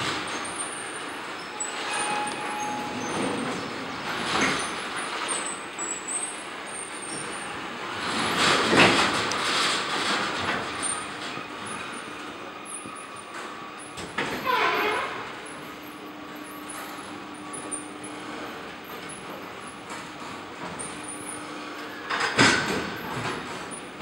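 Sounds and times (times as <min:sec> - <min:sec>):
short high squeaks: 0:00.7 - 0:07.5.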